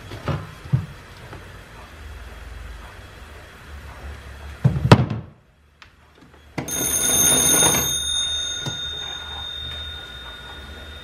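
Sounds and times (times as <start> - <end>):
telephone bells ringing: 6.7 - 11.0.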